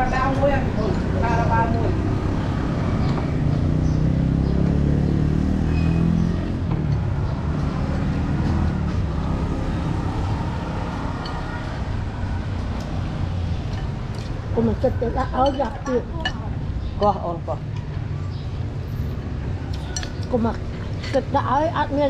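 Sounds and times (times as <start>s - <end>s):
vehicle engine passing by: 0.0s - 15.5s
road traffic noise: 0.0s - 22.0s.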